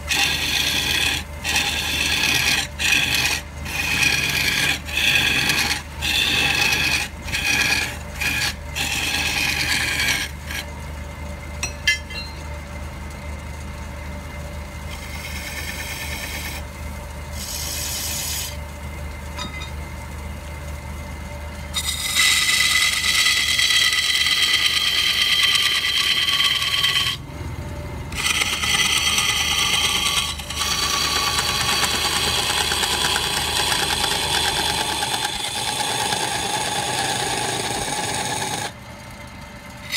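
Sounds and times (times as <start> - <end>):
turning tool scraping wood: 0.0 - 10.7, 14.9 - 16.7, 17.3 - 18.7, 21.7 - 27.2, 28.1 - 38.8
wood lathe running: 0.0 - 10.7, 14.9 - 16.7, 17.3 - 18.6, 21.7 - 27.4, 28.0 - 38.8.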